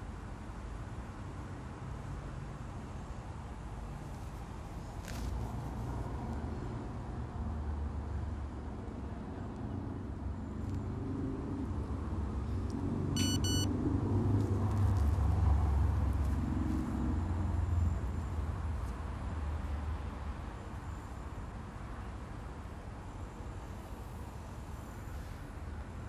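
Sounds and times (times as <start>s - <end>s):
road vehicles rumbling: 0.0s - 26.0s
short high beep: 13.2s - 13.7s.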